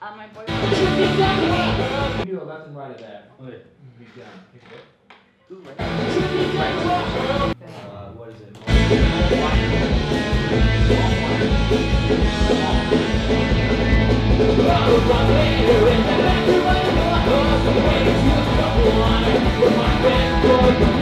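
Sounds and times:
punk rock music with singing: 0:00.5 - 0:02.2, 0:05.8 - 0:07.6, 0:08.7 - 0:21.0.

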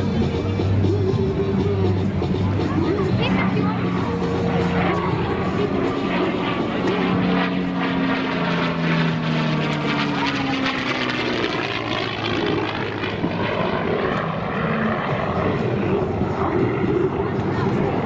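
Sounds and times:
propeller plane engine droning: 0:00.0 - 0:18.0.

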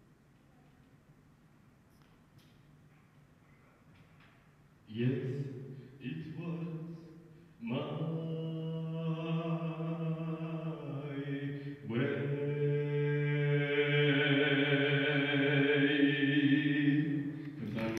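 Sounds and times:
man singing sustained notes: 0:04.9 - 0:18.0.

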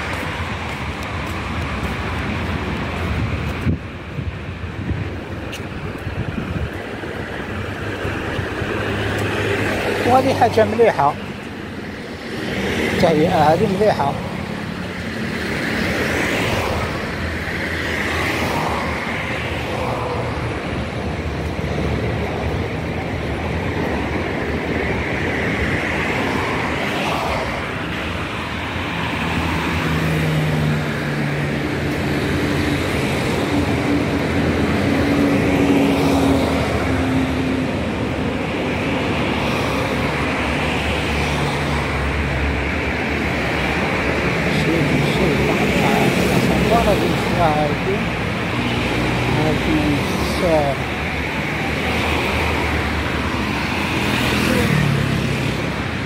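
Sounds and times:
cars driving past: 0:00.0 - 0:56.0
vehicle engine drone: 0:00.0 - 0:56.0.

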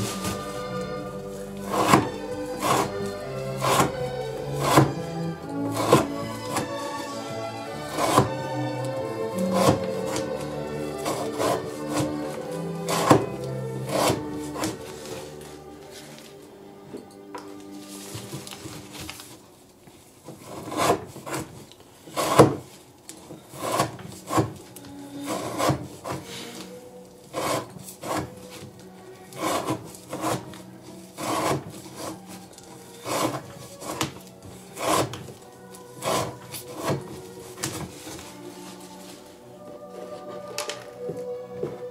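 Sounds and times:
knife slicing through rope: 0:00.0 - 0:08.5, 0:09.3 - 0:15.2, 0:23.5 - 0:26.6, 0:29.3 - 0:35.4, 0:36.0 - 0:38.9.

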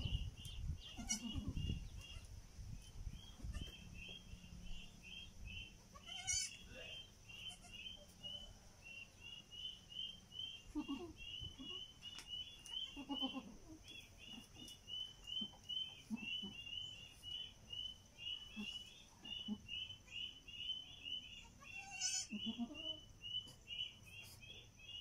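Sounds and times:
goats bleating: 0:00.9 - 0:01.6, 0:05.9 - 0:06.6, 0:10.7 - 0:11.8, 0:12.9 - 0:13.6, 0:21.6 - 0:23.0.

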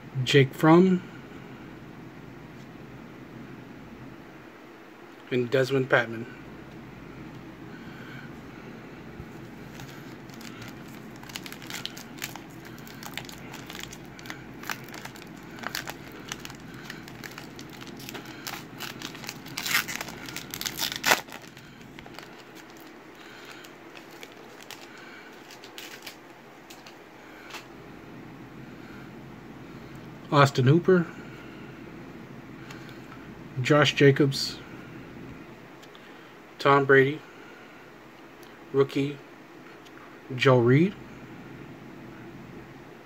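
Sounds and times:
plastic wrapper crinkling and tearing: 0:09.6 - 0:27.7.

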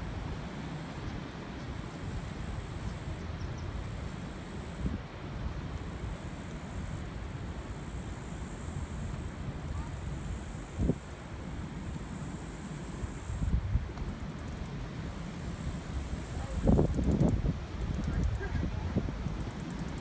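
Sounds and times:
insects buzzing: 0:00.0 - 0:18.5, 0:19.1 - 0:20.0
wind on microphone: 0:08.8 - 0:11.3, 0:13.2 - 0:14.3, 0:15.7 - 0:20.0.

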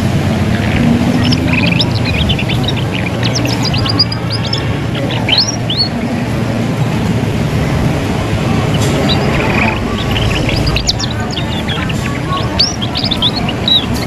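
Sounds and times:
canary chirping: 0:00.0 - 0:06.4, 0:07.6 - 0:14.0
low background rumble: 0:00.0 - 0:14.0.

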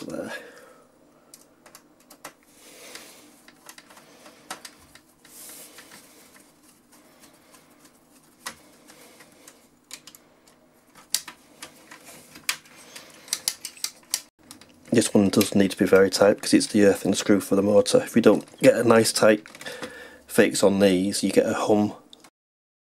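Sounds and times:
screwdriver clicking and scraping: 0:11.0 - 0:14.7.

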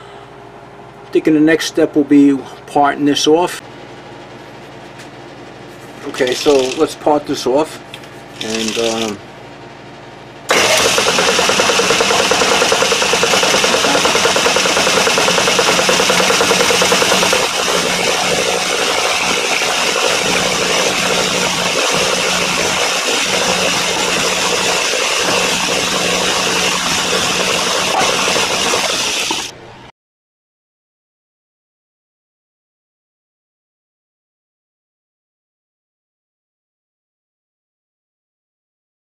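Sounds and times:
cutting tool hissing on metal: 0:10.5 - 0:29.5
lathe motor hum: 0:10.5 - 0:29.6.

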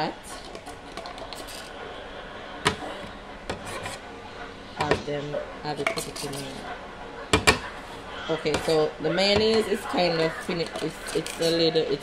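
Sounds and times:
scraping inside a jar: 0:00.2 - 0:01.8, 0:03.5 - 0:04.0.

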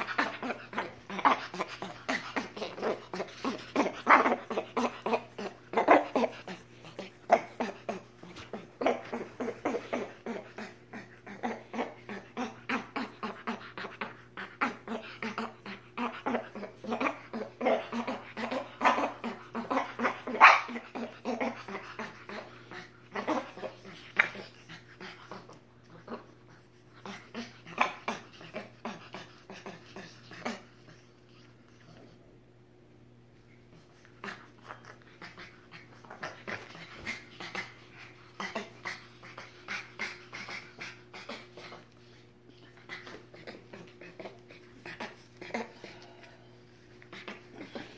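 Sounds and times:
monkeys grunting and squeaking: 0:00.0 - 0:26.4, 0:42.6 - 0:46.1.

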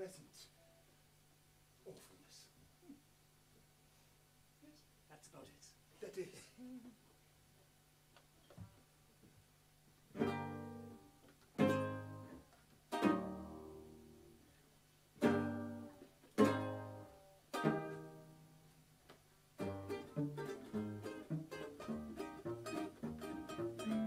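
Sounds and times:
ukulele and plucked cello chords: 0:10.1 - 0:14.4, 0:15.2 - 0:18.7, 0:19.6 - 0:24.0.

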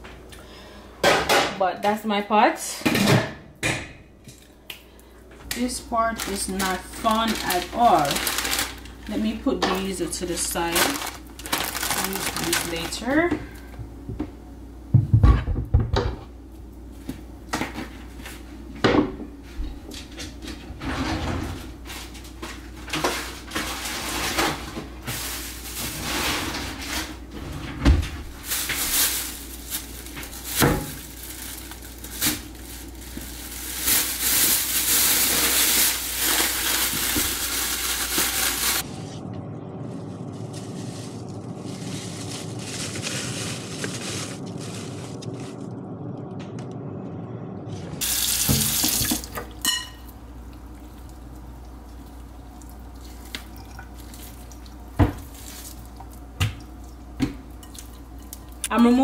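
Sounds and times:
kitchen knocks and clatters: 0:01.0 - 0:01.6, 0:02.7 - 0:04.0, 0:15.0 - 0:16.3, 0:18.8 - 0:21.7.

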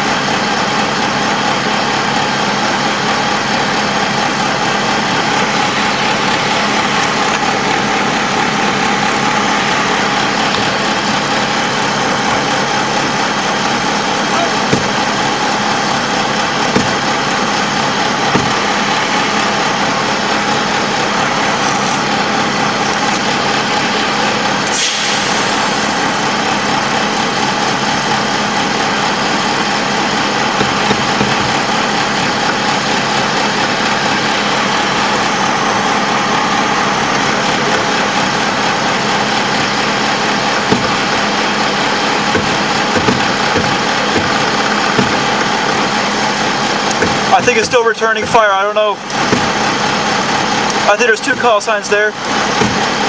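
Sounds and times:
diesel engine droning: 0:00.0 - 0:53.0
short sharp knocks: 0:14.6 - 0:15.2, 0:18.2 - 0:18.8, 0:42.3 - 0:45.8, 0:52.6 - 0:53.0.

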